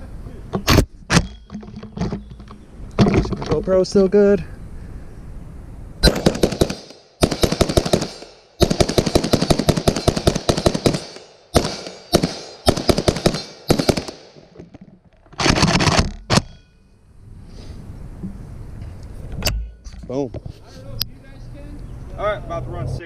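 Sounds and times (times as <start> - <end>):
rifle firing rapid shots: 6.0 - 14.4.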